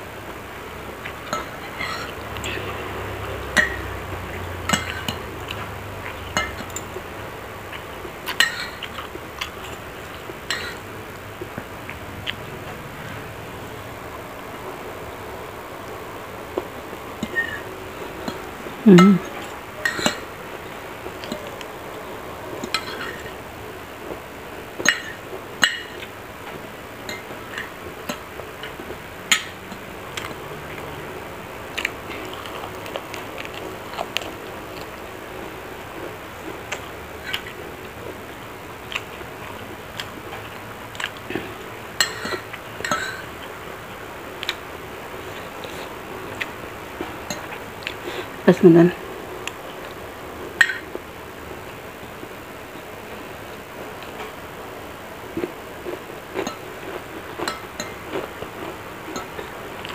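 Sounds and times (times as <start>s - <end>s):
cutlery clinking on a plate: 1.3s - 2.6s, 3.5s - 4.0s, 4.7s - 5.3s, 6.3s - 7.0s, 8.3s - 9.0s, 10.5s - 10.8s, 19.3s - 20.3s, 22.6s - 23.3s, 24.8s - 26.0s, 42.0s - 43.3s, 57.4s - 58.3s.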